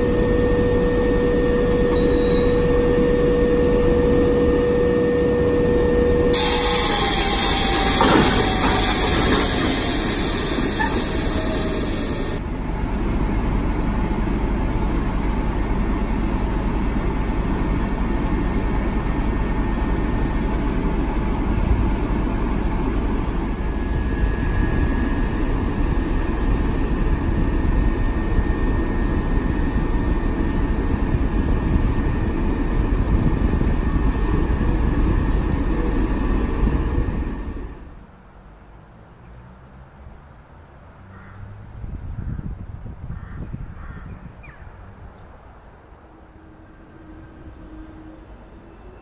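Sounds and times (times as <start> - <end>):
diesel locomotive engine idling: 0.0 - 38.6.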